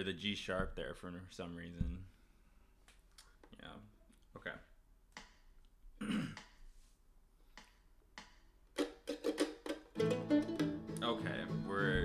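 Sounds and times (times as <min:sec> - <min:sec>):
mandolin picked notes: 0:08.8 - 0:12.0
fuller lower accompaniment: 0:09.4 - 0:12.0.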